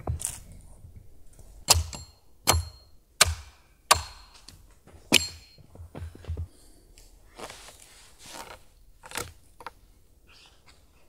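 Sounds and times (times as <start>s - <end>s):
axe chopping wood: 1.7s - 5.6s.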